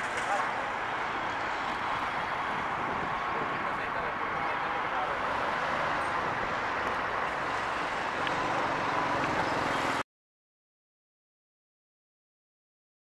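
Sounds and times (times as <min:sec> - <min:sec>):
distant traffic hum: 0:00.0 - 0:10.0.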